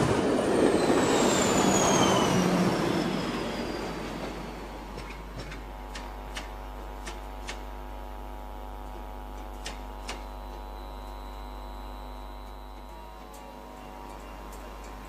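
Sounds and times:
electric locomotive humming: 0.0s - 15.0s
sharp clicks: 9.4s - 10.6s.

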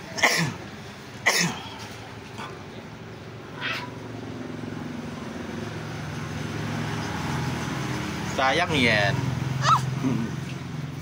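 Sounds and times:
kitten crying: 3.5s - 4.0s.

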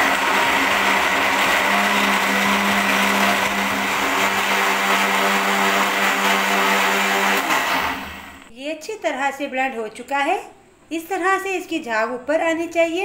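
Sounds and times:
blender blending ice: 0.0s - 8.5s.

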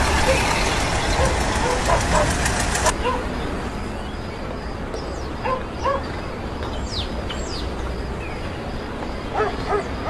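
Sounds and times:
low town rumble: 0.0s - 10.0s
dog barks: 1.2s - 3.3s, 9.3s - 9.9s.

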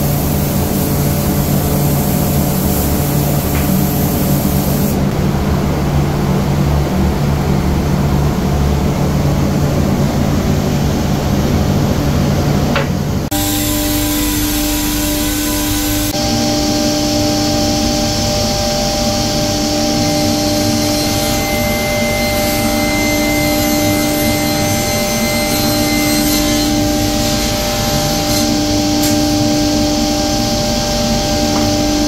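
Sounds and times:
even hiss: 0.0s - 5.0s.

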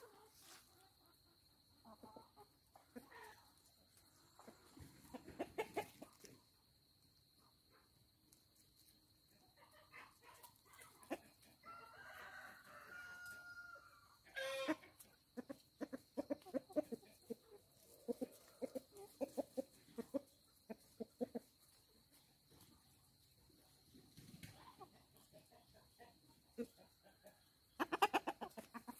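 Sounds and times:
chickens clucking: 0.0s - 28.9s
rooster crowing: 11.6s - 14.8s.

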